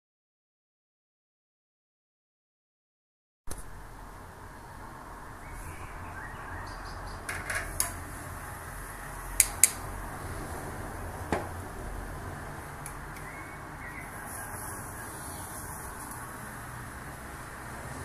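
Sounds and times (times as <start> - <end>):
steady low background noise: 3.5 - 18.0
tongs tapping on wire rack: 7.3 - 8.1.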